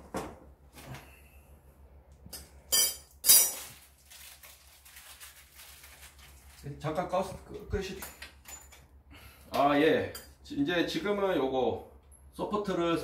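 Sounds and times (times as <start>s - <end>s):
small objects clinking on table: 2.3s - 4.4s.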